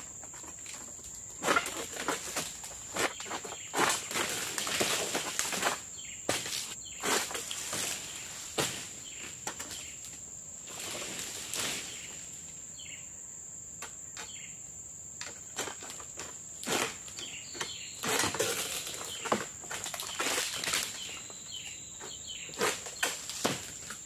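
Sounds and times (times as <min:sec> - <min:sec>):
palm fronds rustling and scraping: 0:00.0 - 0:12.7, 0:15.2 - 0:24.0.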